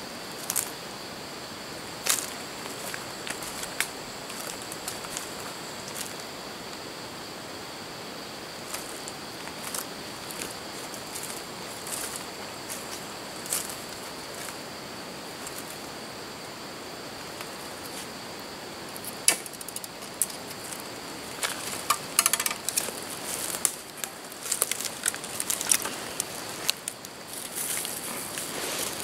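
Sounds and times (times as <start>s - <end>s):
twigs crackling and snapping: 2.0s - 6.2s, 19.1s - 28.5s
footsteps crunching through leaf litter: 2.0s - 6.3s, 8.6s - 14.7s, 22.7s - 29.0s.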